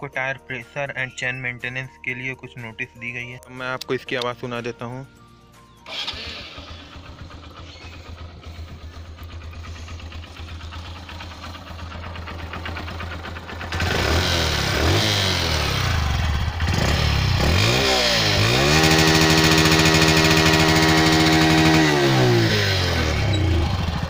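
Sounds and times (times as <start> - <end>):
motorcycle engine idling and revving: 5.8 - 24.0.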